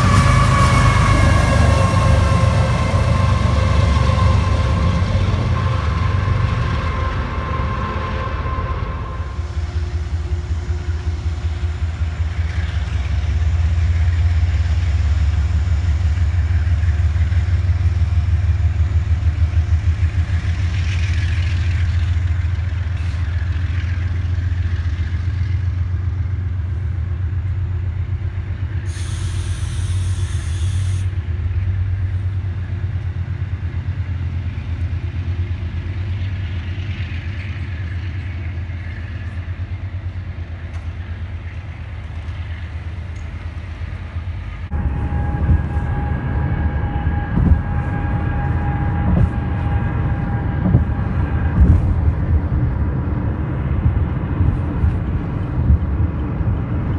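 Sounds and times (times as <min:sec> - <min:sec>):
passenger train rumbling past: 0:00.0 - 0:56.9
high hiss: 0:28.9 - 0:31.1.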